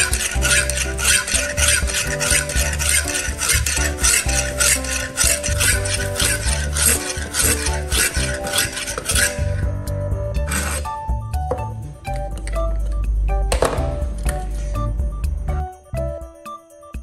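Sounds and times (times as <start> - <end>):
sharpening stone scraping knife: 0.0 - 11.0
background music: 0.0 - 17.0.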